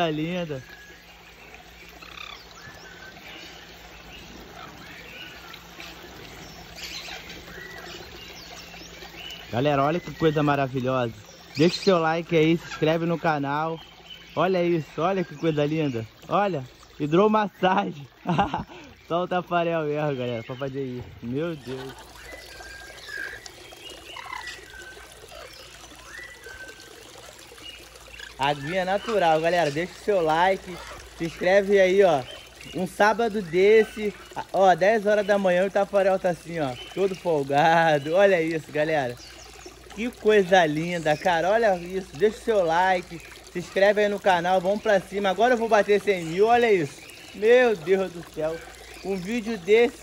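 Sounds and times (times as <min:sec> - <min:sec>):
water trickling into stone basin: 0:00.0 - 0:50.0.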